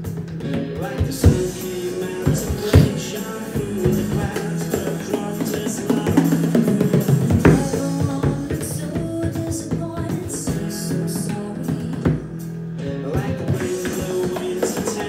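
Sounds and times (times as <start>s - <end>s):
recorded pop song with singing: 0.0s - 15.0s
frame drum beaten with tipper: 0.1s - 10.8s, 13.4s - 15.0s.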